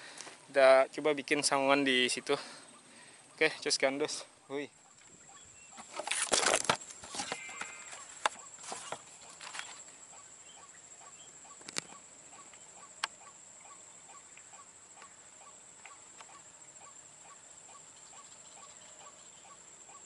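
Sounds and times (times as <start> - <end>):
bird clucking call: 7.1 - 20.0.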